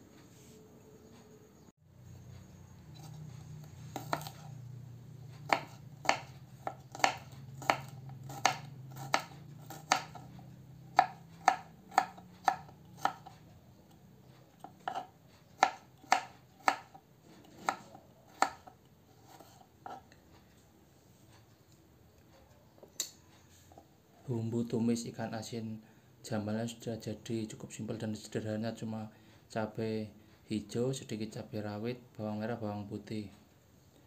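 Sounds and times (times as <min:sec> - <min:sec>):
knife chopping on wooden board: 0:03.0 - 0:04.6, 0:05.4 - 0:13.4, 0:14.6 - 0:20.1.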